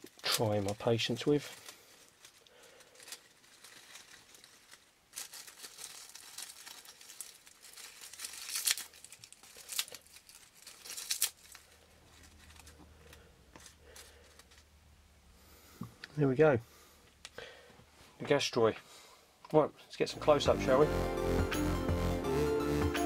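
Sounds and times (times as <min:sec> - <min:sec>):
dry leaves crackling: 0:00.0 - 0:14.6.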